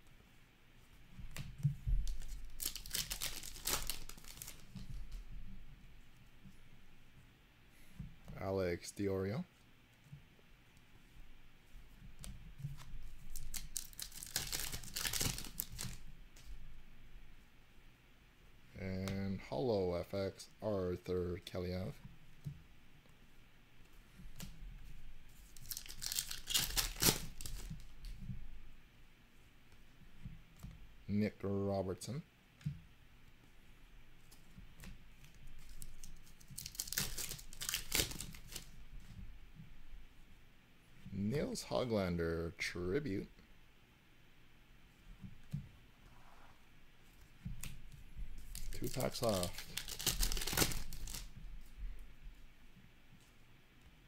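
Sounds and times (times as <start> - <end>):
foil wrapper tearing and crinkling: 2.0 - 4.7, 13.3 - 16.0, 25.6 - 27.8, 35.6 - 38.7, 48.4 - 51.3.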